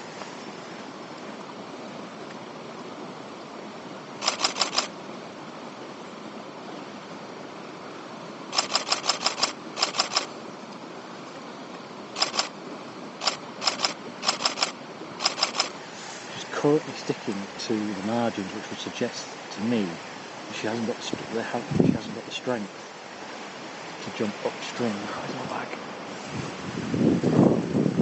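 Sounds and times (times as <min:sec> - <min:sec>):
river water rushing: 0:00.0 - 0:27.4
camera shutter bursts: 0:04.2 - 0:04.9, 0:08.5 - 0:10.3, 0:12.2 - 0:12.6, 0:13.2 - 0:15.8.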